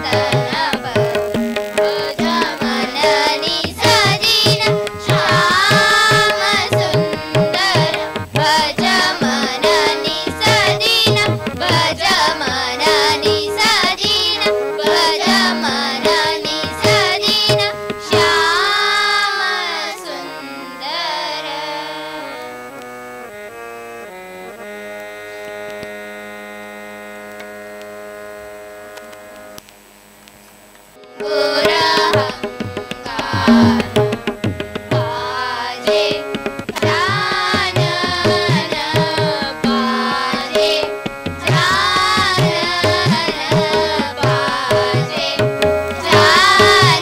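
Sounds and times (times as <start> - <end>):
person singing with gliding notes: 0.0 - 27.0, 31.0 - 47.0
children's group song with harmonium: 0.0 - 47.0
drum beat: 31.3 - 35.2.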